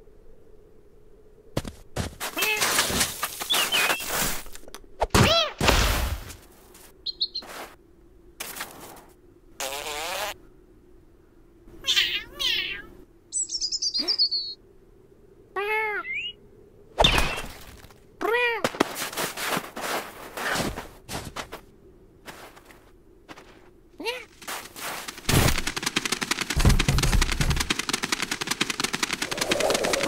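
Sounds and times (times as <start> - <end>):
cartoon bird chirps and trill: 13.4 - 14.6, 15.8 - 16.4
cartoon cat meows and yowls: 15.6 - 16.3
thumps: 25.3 - 29.0.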